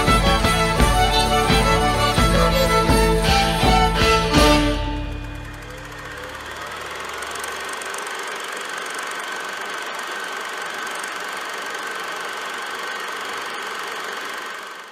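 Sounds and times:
high hum: 3.6s - 8.3s
film projector whirring: 5.0s - 14.9s.

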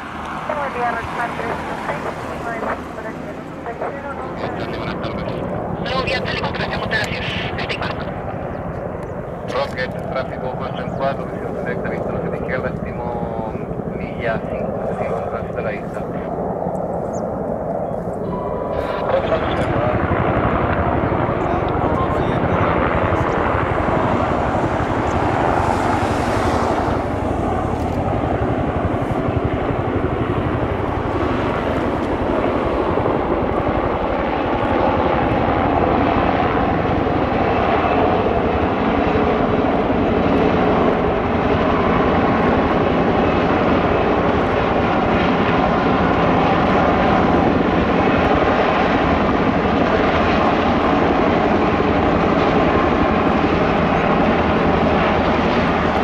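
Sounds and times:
helicopter rotor and turbine noise: 0.0s - 56.0s.

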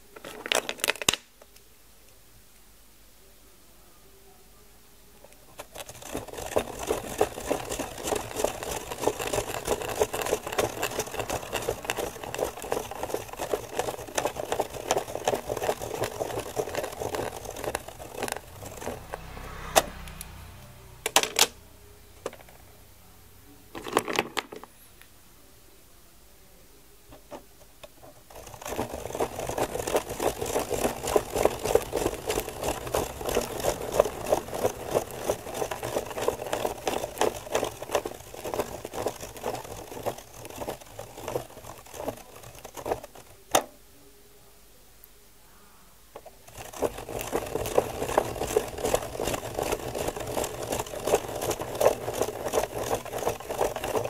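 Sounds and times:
pen scratching on paper: 5.6s - 19.3s, 28.3s - 43.4s
plastic gear teeth clicking: 5.6s - 20.3s, 28.3s - 43.7s, 46.4s - 54.0s.

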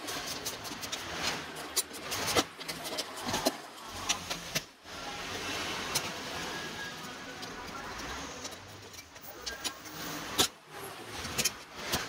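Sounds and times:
hands clicking and tapping wiring: 0.0s - 4.7s.

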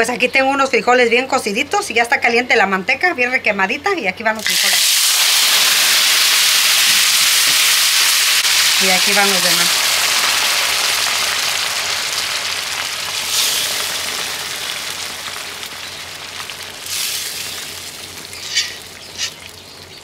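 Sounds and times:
sharp crackles: 4.4s - 19.8s
beans sizzling in hot fat: 4.4s - 20.0s.

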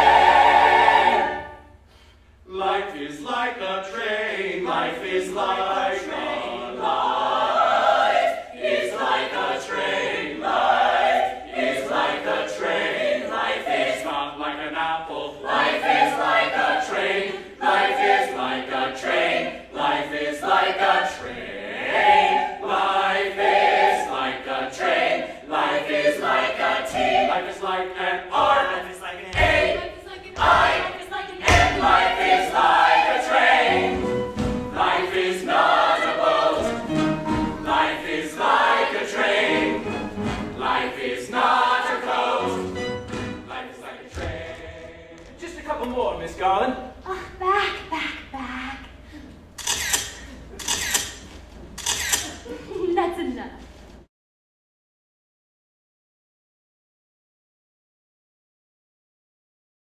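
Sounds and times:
cast singing ensemble number: 0.0s - 1.9s, 2.5s - 45.4s
low thumps: 29.3s - 32.4s, 33.9s - 35.0s.

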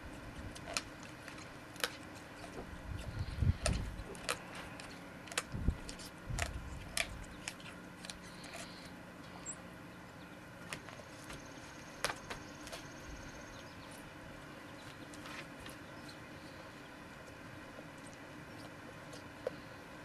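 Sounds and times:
dog gnawing a chew toy: 0.0s - 9.0s.

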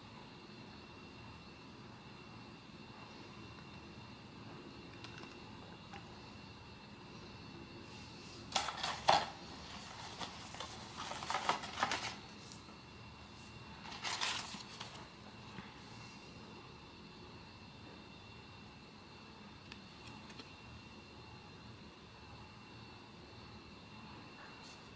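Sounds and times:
packaging rustling and crackling: 8.5s - 12.6s, 13.8s - 15.1s.

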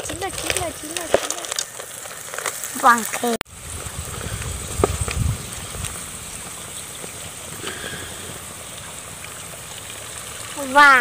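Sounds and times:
wood fire crackling: 0.0s - 11.0s
low rumble: 3.5s - 10.4s
steady low hiss: 3.5s - 10.8s.

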